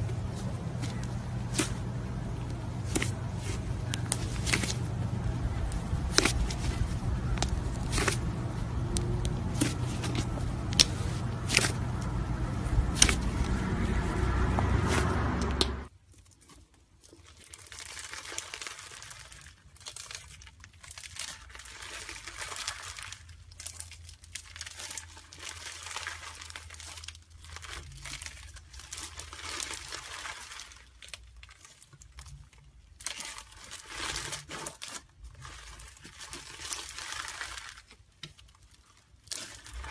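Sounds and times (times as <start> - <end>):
low rumble: 0.0 - 15.9
slime stretching crinkly crackling: 0.0 - 39.9.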